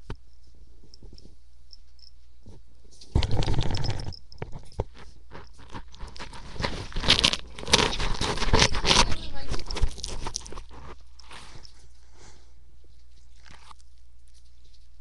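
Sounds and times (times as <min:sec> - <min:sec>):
cat rubbing against microphone: 0:02.4 - 0:15.0
clicks and crunches: 0:02.5 - 0:11.8, 0:12.9 - 0:15.0.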